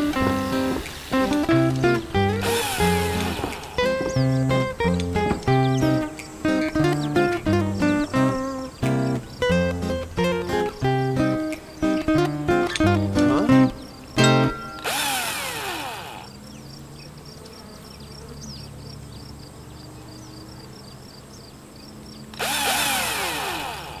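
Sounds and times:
faint regular ticks: 0.0 - 14.3
cordless drill whirring: 2.4 - 4.0, 14.8 - 16.4, 22.4 - 24.0.

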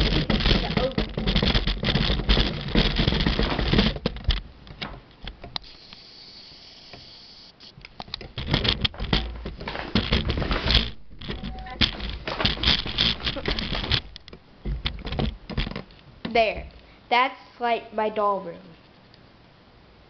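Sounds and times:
taps and knocks: 0.0 - 5.6
faint hiss: 5.6 - 7.9.

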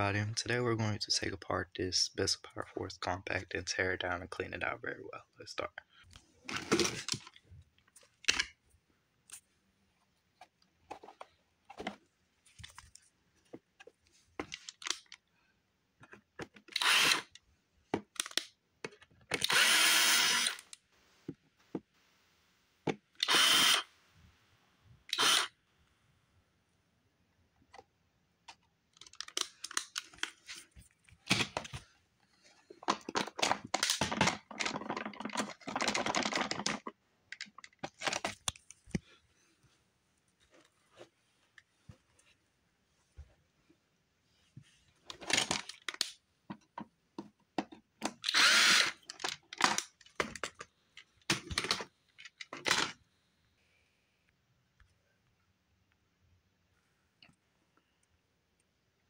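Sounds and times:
plastic parts clicking and rattling: 6.1 - 8.6, 10.9 - 15.3, 16.0 - 19.7, 27.7 - 39.2, 45.0 - 53.0
cordless screwdriver running: 16.8 - 17.3, 19.4 - 20.7, 23.2 - 23.9, 25.1 - 25.5, 48.2 - 49.0.

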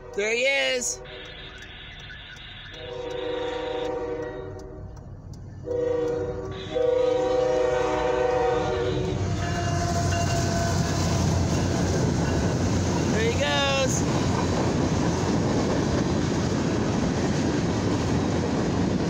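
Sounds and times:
locomotive air horn: 0.0 - 1.6, 2.7 - 4.9, 5.6 - 11.2
locomotive engine and wheels rumbling: 0.0 - 19.0.

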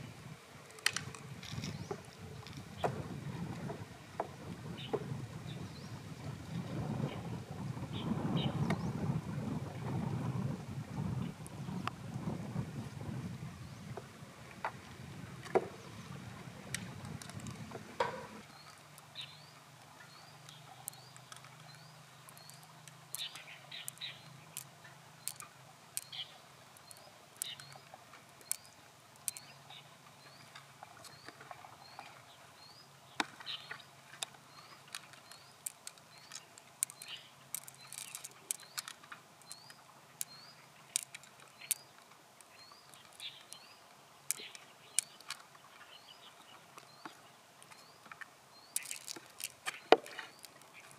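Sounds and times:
wet clicks and squelches: 20.4 - 26.2, 26.8 - 29.5, 34.2 - 43.7, 44.3 - 45.5, 46.8 - 50.9.

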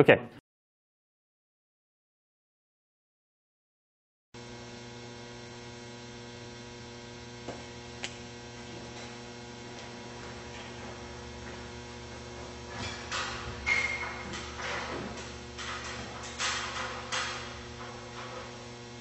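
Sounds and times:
electrical mains hum: 4.4 - 19.0.

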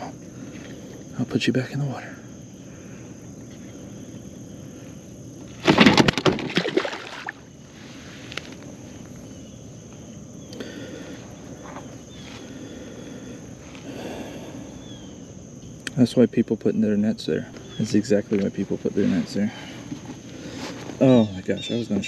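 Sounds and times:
fish thrashing slaps and splashes: 5.6 - 7.4.

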